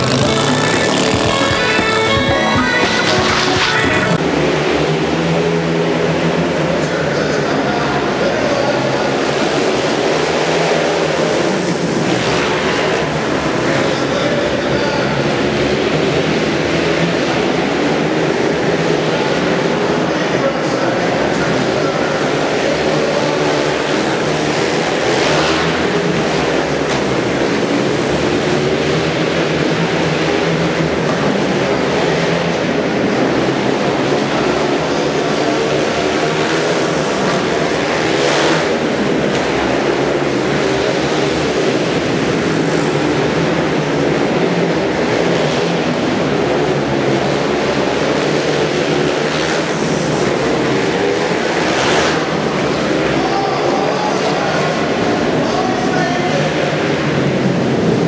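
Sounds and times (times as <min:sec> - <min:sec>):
racing motorcycle engines: 0:00.0 - 0:58.0.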